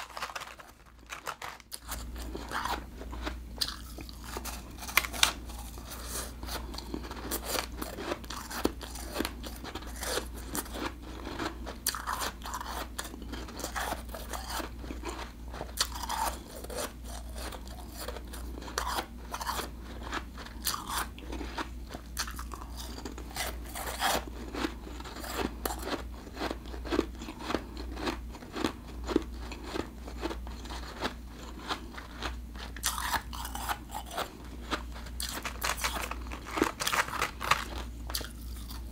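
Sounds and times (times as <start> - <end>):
person crunching ice: 0.0 - 21.6, 32.8 - 38.8.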